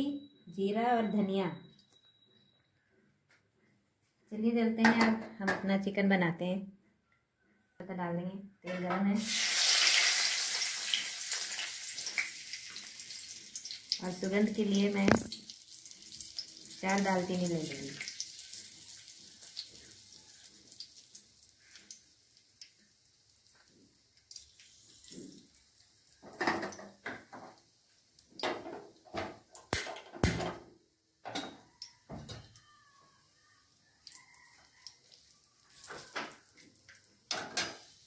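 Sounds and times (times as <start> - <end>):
spices sizzling in hot oil: 9.2 - 30.4, 31.8 - 38.0.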